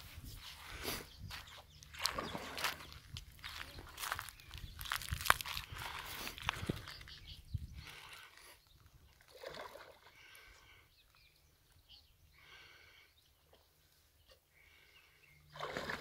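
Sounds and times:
water sloshing and splashing: 1.9s - 3.6s, 9.1s - 10.3s, 15.5s - 16.0s.

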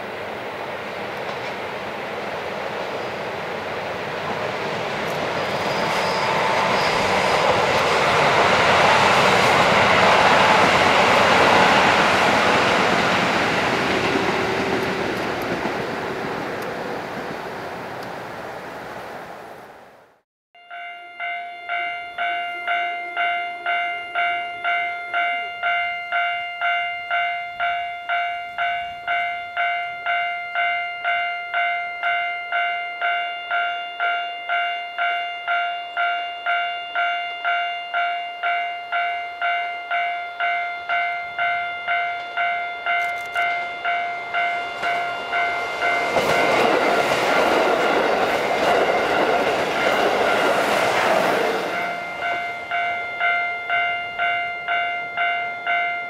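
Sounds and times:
diesel train passing: 0.0s - 20.2s, 21.2s - 56.0s
level crossing bell ringing: 20.6s - 46.9s, 51.7s - 56.0s.

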